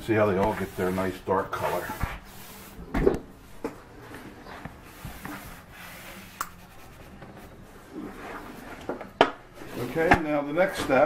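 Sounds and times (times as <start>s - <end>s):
paper towel wiping wood: 0.1s - 2.8s, 4.8s - 7.2s.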